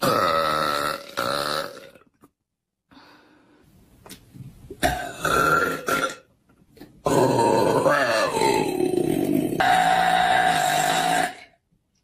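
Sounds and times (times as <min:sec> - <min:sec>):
woman burping: 0:00.0 - 0:02.0, 0:04.8 - 0:06.3, 0:07.0 - 0:11.6.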